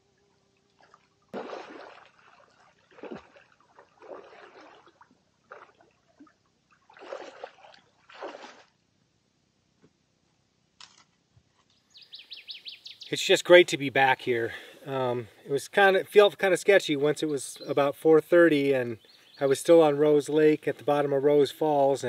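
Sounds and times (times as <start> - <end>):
paddle splashing in water: 0.8 - 8.8.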